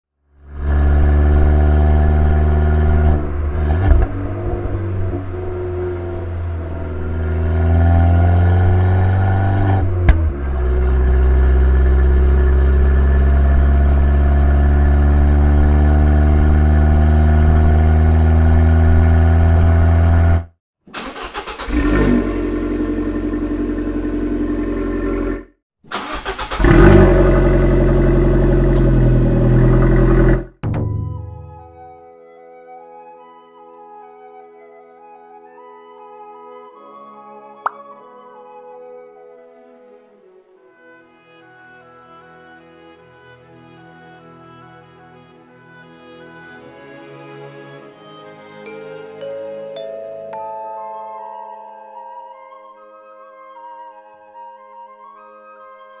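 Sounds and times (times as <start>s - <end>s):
car engine idling and revving: 0.4s - 20.5s, 21.1s - 30.6s.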